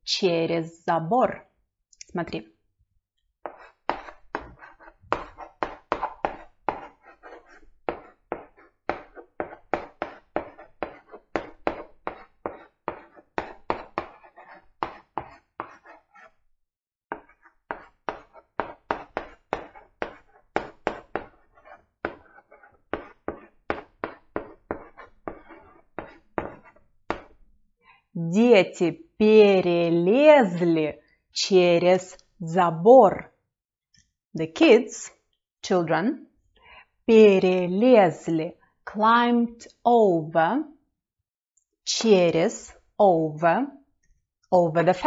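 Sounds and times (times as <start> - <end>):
chalk tapping and scraping on blackboard: 3.4 - 16.4, 17.1 - 27.5.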